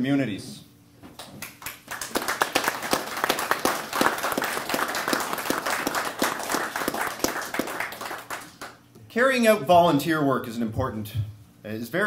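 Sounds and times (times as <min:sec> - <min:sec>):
small group applauding: 0:01.2 - 0:08.9.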